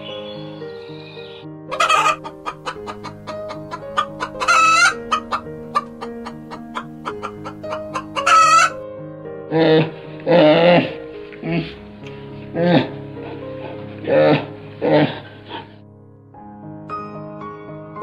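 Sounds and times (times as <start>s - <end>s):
background music: 0.0s - 18.0s
chicken squawks: 1.0s - 8.8s
chickens clucking: 1.7s - 8.8s.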